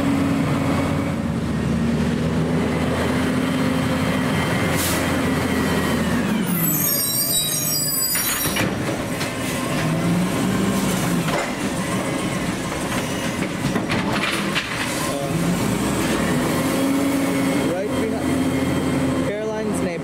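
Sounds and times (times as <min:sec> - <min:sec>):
diesel engine revving: 0:00.0 - 0:20.0
hydraulic whine: 0:04.6 - 0:13.8
high metallic squeal: 0:06.4 - 0:08.7
trash cart knocking: 0:08.4 - 0:10.0, 0:11.2 - 0:15.3.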